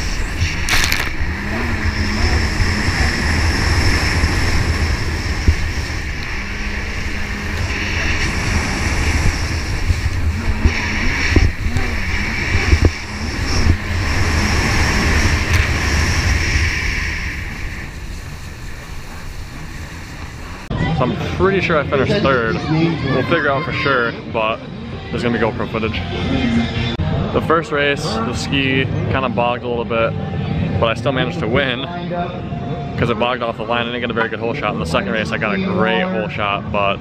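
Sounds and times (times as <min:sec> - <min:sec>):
jet ski engine running: 0:00.0 - 0:20.7
wind rumble on microphone: 0:00.0 - 0:23.4.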